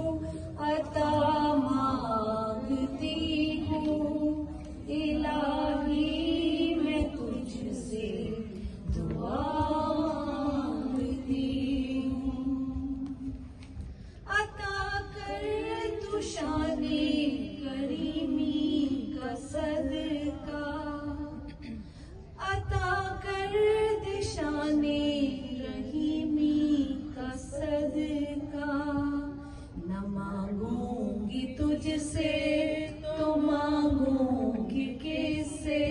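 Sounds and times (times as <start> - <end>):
woman singing into a microphone: 0.0 - 13.6, 14.2 - 35.9.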